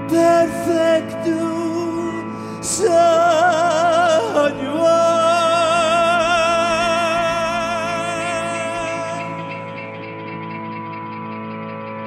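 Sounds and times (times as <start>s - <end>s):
man singing with vibrato: 0.0s - 10.0s.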